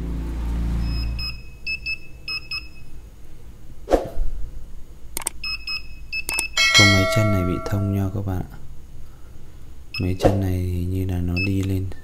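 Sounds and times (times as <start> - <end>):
sharp click: 5.2 - 5.4, 6.2 - 6.6.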